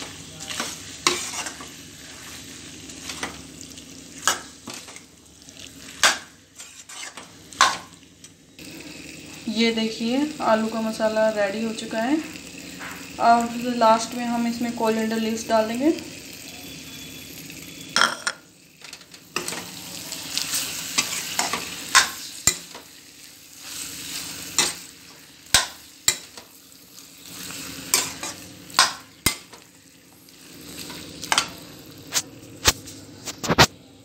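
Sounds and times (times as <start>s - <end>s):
food sizzling: 0.0s - 34.0s
spoon scraping a metal pan: 0.5s - 2.4s, 5.9s - 7.9s, 20.6s - 22.9s, 23.6s - 26.4s, 27.3s - 29.6s.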